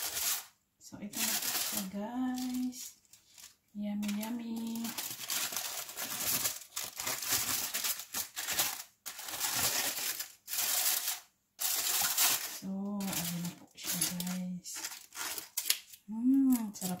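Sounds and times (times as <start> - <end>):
aluminium foil crinkling: 0.0 - 17.0.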